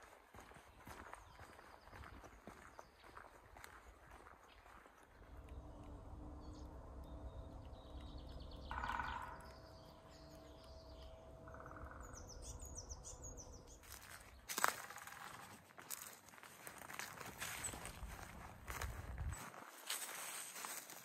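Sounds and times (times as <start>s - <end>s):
birds chirping and calling: 0.8s - 16.0s
faint steady hum: 5.1s - 14.2s
wind rumble on microphone: 17.7s - 19.5s.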